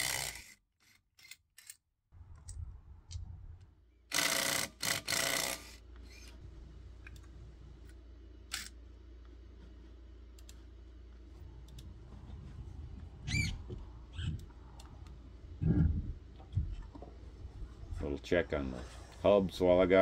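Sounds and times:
low steady hum: 2.2s - 20.0s
impact driver bursts: 4.1s - 5.8s.

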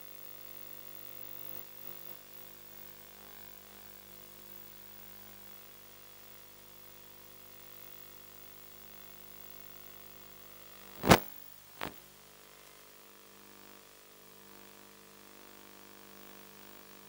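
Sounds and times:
sharp cracks: 10.9s - 12.0s.

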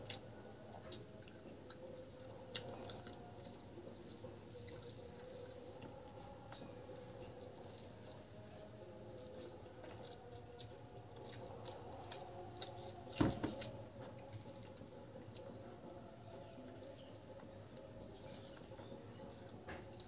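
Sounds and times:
chewing: 0.0s - 20.0s
thump: 13.2s - 13.6s.

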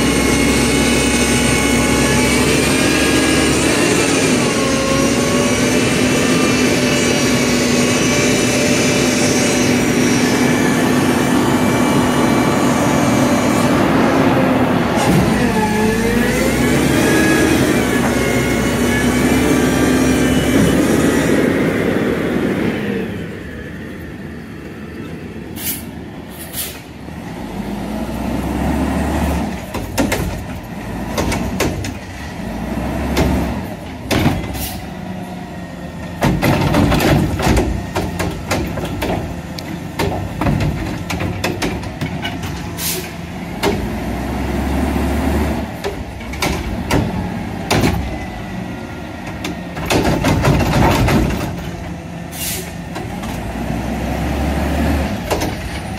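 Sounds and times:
diesel engine revving: 0.0s - 55.9s
plastic carts banging and clattering: 36.2s - 39.3s, 49.8s - 51.8s.

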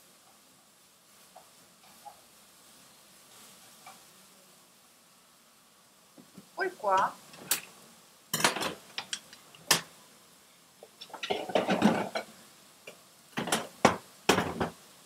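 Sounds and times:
utensils and dishes clinking: 8.4s - 9.9s, 11.0s - 12.3s.

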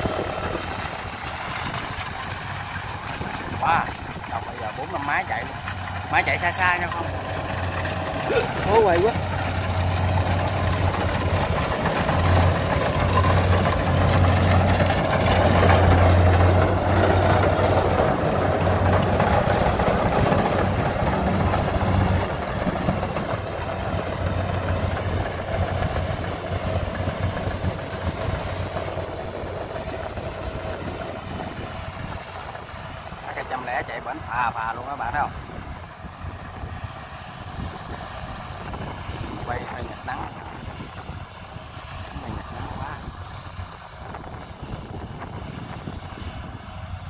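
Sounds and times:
combine harvester engine running: 0.0s - 47.0s.

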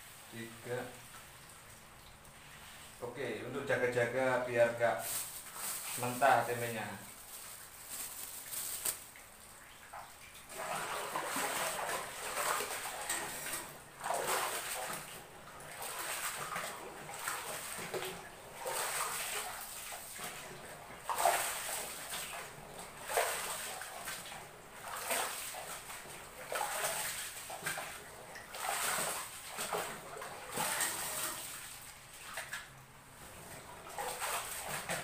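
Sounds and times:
soybeans sloshing and rustling: 3.7s - 35.0s.

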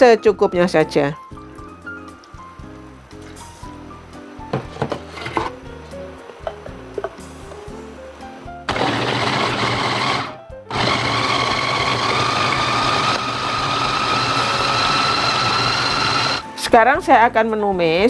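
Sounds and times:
electric food chopper whirring: 8.7s - 16.4s.

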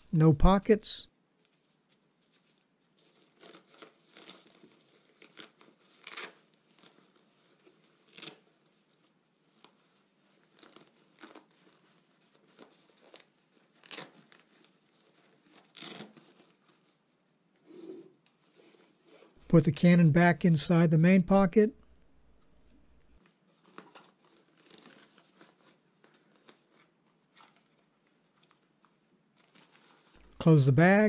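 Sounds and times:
nylon rustling and scratching: 1.5s - 17.1s, 23.7s - 28.6s.

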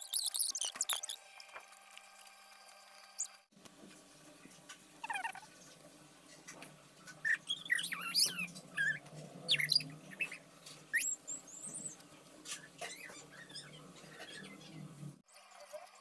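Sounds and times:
birds chirping: 5.0s - 5.5s, 7.0s - 15.2s.

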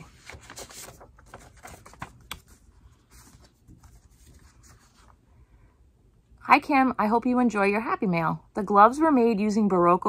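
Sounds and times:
paper rustling: 0.0s - 5.2s.

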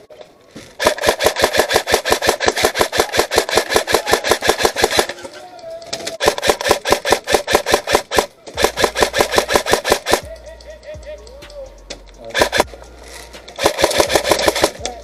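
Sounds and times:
airsoft rifle firing full auto: 0.8s - 5.2s, 6.2s - 10.3s, 12.4s - 12.7s, 13.6s - 14.9s.

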